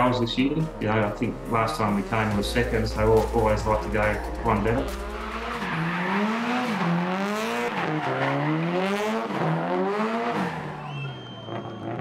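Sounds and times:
car engine revving hard: 0:04.8 - 0:12.0.

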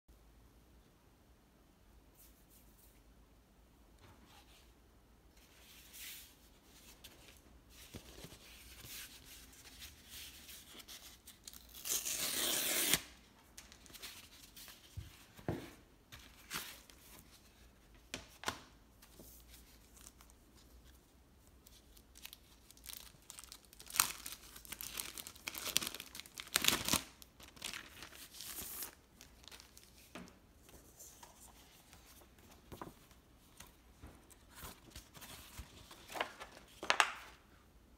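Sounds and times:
cardboard tearing: 0:11.7 - 0:13.1
paper rustling: 0:24.0 - 0:37.4.

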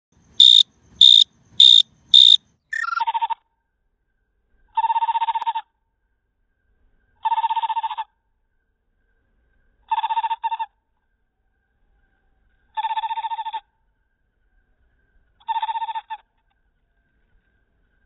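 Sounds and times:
cricket chirping: 0:00.2 - 0:03.0.

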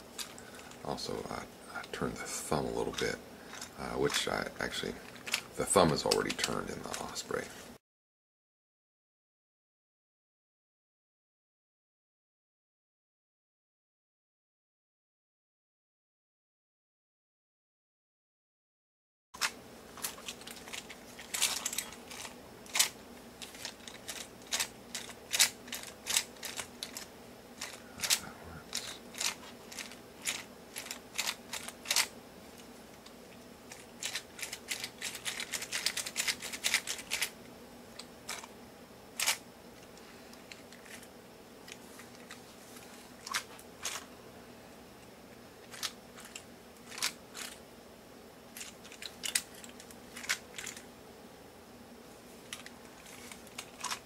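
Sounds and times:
plastic hand parts clicking: 0:05.1 - 0:05.5, 0:19.4 - 0:32.1, 0:33.7 - 0:37.3, 0:48.6 - 0:50.8, 0:52.5 - 0:54.0.

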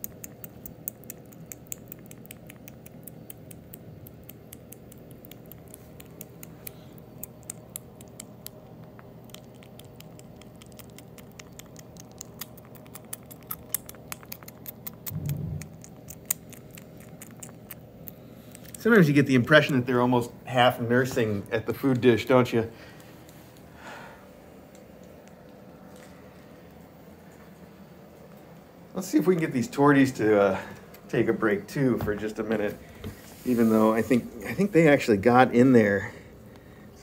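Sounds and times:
kitten chewing wet food: 0:00.0 - 0:28.3, 0:30.6 - 0:31.2
short low sound: 0:15.1 - 0:15.8.

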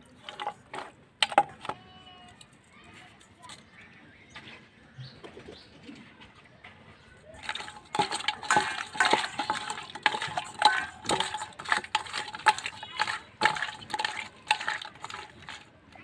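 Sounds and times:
fish knocking on steel bowl: 0:07.4 - 0:16.0
wet sloshing: 0:07.4 - 0:16.0.

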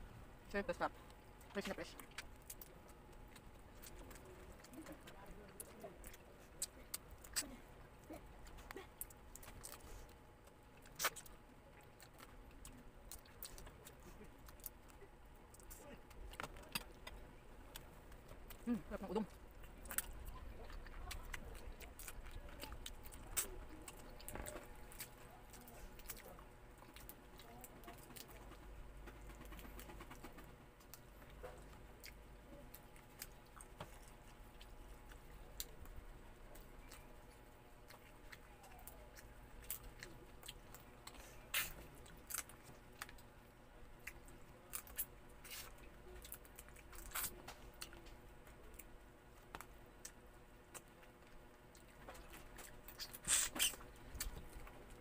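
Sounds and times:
person chewing and sucking: 0:10.8 - 0:14.8, 0:37.8 - 0:43.3, 0:44.0 - 0:48.0, 0:49.5 - 0:54.6.

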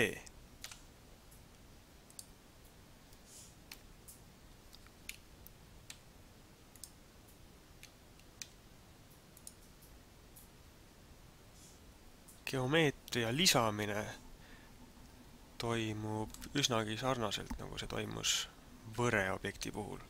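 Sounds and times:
computer mouse clicks: 0:00.6 - 0:00.9, 0:02.0 - 0:02.4, 0:03.1 - 0:06.0, 0:06.7 - 0:07.0, 0:07.8 - 0:08.6, 0:09.3 - 0:10.5.

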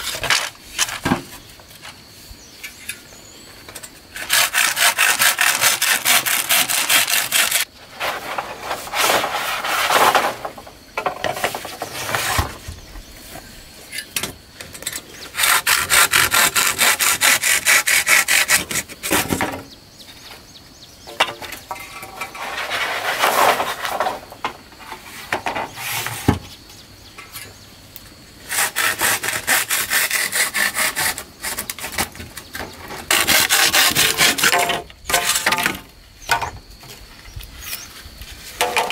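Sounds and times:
wood being sawn by hand: 0:04.2 - 0:07.7, 0:15.4 - 0:19.3, 0:28.5 - 0:32.1, 0:33.0 - 0:34.6.

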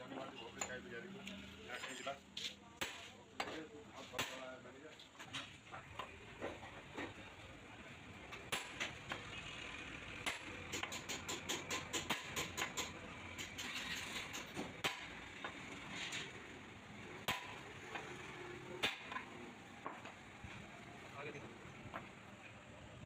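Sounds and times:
hammer striking metal: 0:10.2 - 0:13.6.

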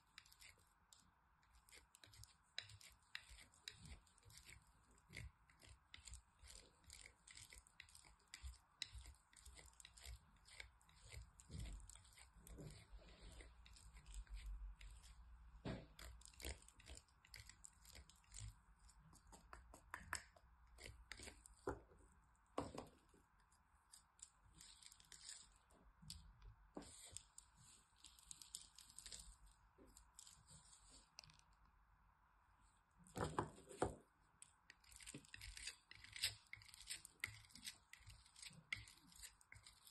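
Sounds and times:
soap scraped on metal grater: 0:01.4 - 0:15.2.

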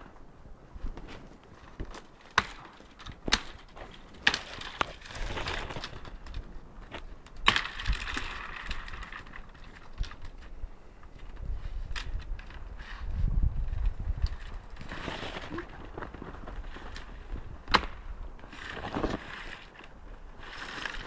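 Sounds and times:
wood crunching and scraping: 0:00.8 - 0:21.0.

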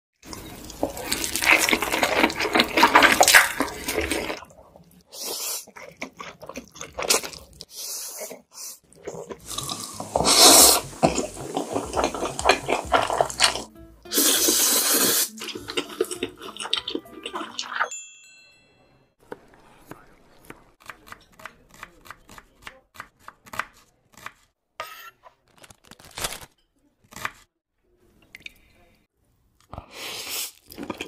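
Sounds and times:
noodles slurped and chewed: 0:00.2 - 0:17.9, 0:30.0 - 0:31.0.

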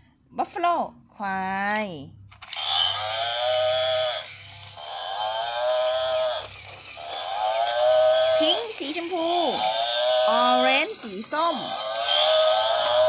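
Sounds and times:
toy recorded mooing: 0:02.6 - 0:13.0.

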